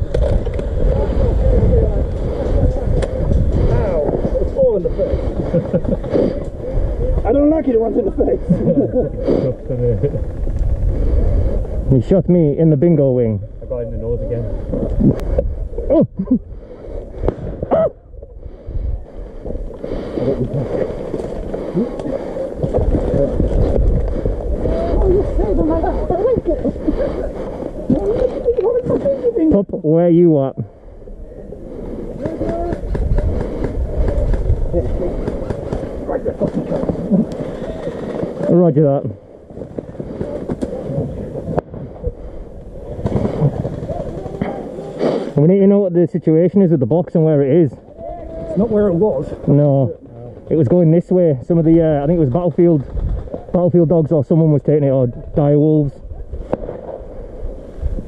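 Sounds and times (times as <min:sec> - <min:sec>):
wind buffeting microphone: 0:00.0 - 0:29.8, 0:30.5 - 0:45.3, 0:47.8 - 0:58.0
leaves and branches rustling: 0:18.5 - 0:29.6, 0:30.7 - 0:45.8, 0:47.8 - 0:58.0.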